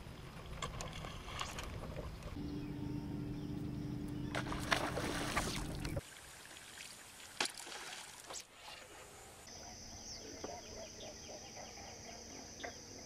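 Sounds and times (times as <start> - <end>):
high-pitched hum: 2.4 - 6.0
light water splashes: 4.3 - 9.0.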